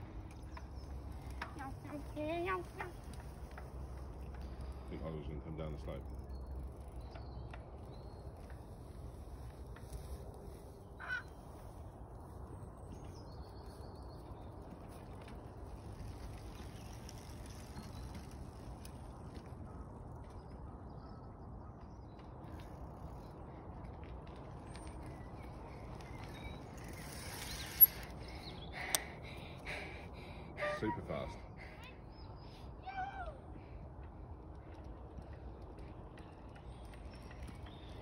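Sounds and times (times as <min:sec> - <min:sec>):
bicycle riding past: 0:00.0 - 0:38.0
distant bird calls: 0:24.6 - 0:33.5.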